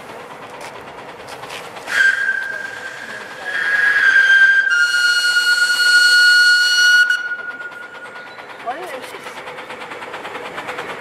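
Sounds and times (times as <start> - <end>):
steam locomotive whistle: 1.9 - 7.9.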